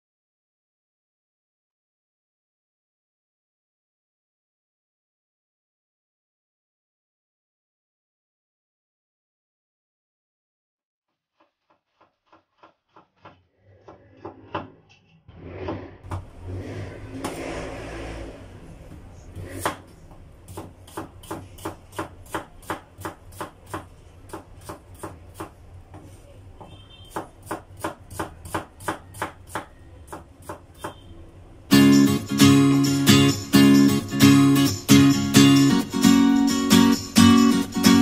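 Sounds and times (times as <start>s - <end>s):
knife slicing onion on cutting board: 11.4s - 14.8s, 19.3s - 31.0s.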